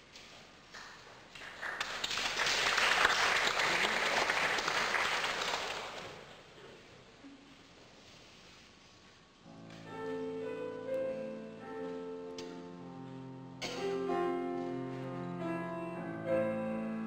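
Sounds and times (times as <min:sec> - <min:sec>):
audience applauding: 0:01.3 - 0:06.3.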